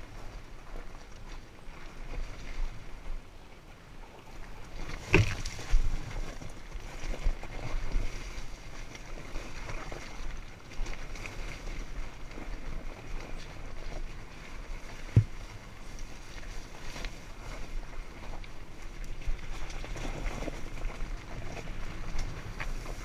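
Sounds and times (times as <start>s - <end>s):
wind on microphone: 4.5s - 23.0s
bike knocking on rocks: 15.1s - 15.4s.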